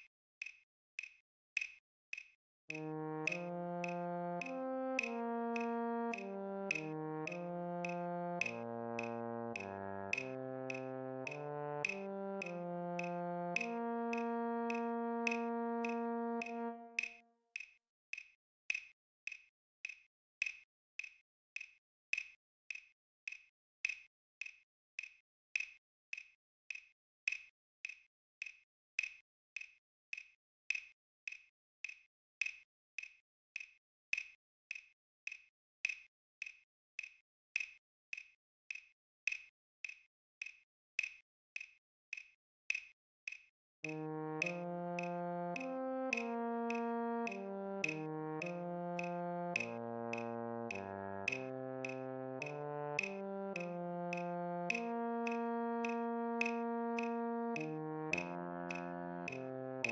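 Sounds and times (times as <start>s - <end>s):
metronome clicking: 0.0s - 18.2s, 41.0s - 59.9s
euphonium note: 2.7s - 17.1s.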